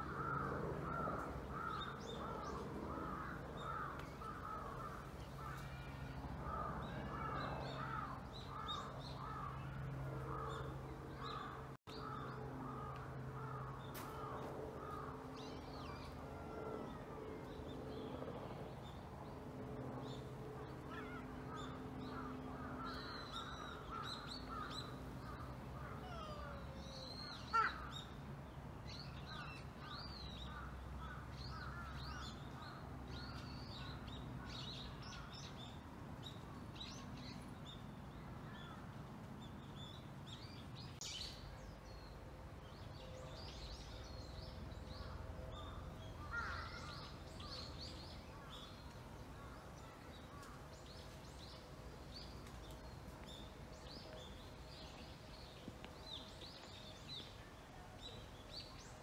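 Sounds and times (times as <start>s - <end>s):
birds harsh calls: 46.2s - 47.6s.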